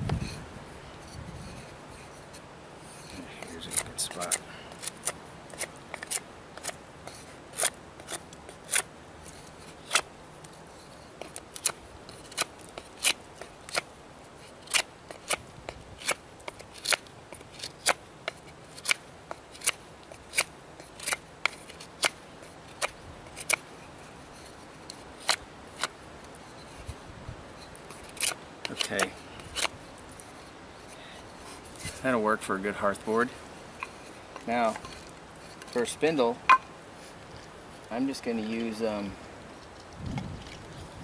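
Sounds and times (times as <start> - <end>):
knife shaving wood: 1.0 - 32.2.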